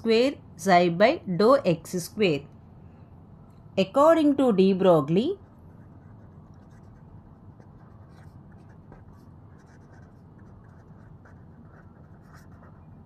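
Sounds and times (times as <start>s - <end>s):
low steady hum: 0.0s - 13.0s
pen scratching on paper: 5.4s - 13.0s.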